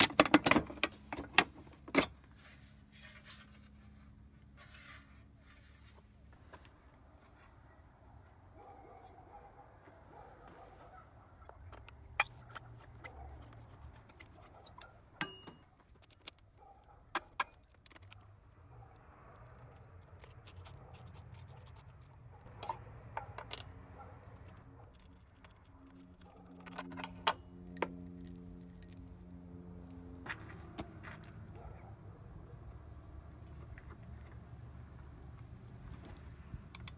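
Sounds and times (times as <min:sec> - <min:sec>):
metal tools clicking and jingling: 0:14.0 - 0:16.4, 0:20.2 - 0:30.1.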